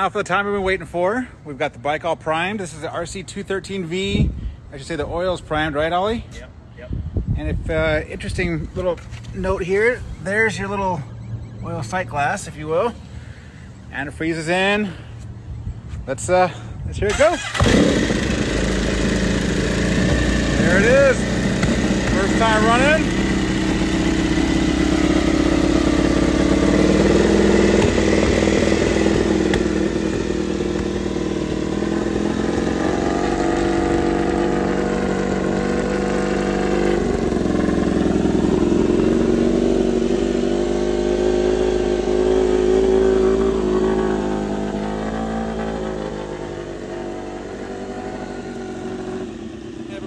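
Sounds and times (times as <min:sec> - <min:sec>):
motorcycle engine revving: 0:17.1 - 0:50.0.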